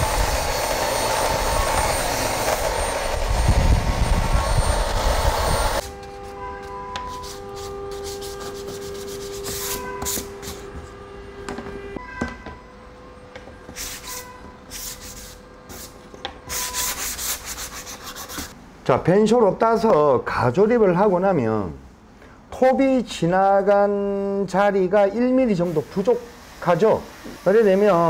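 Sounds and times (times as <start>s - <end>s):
sanding wood by hand: 7.0s - 11.0s, 13.7s - 18.6s.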